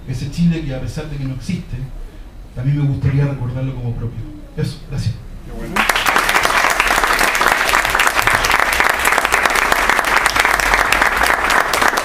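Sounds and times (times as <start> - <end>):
audience applauding: 5.7 - 12.0.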